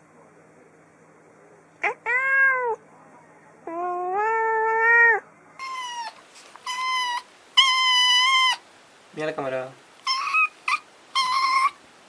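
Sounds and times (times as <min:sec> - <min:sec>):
adult cat meowing: 0:01.8 - 0:02.8, 0:03.7 - 0:08.6
kitten meowing: 0:01.8 - 0:02.8, 0:03.7 - 0:08.6.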